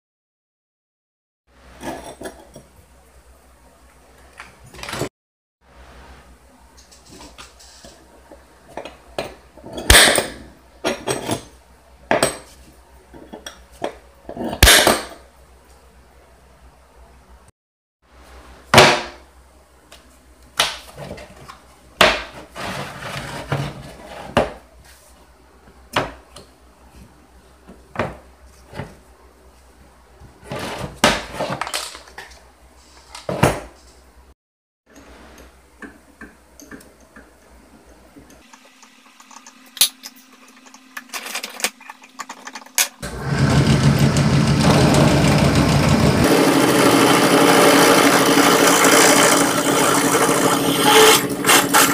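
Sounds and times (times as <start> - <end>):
drill press drilling into steel: 43.0 - 51.9.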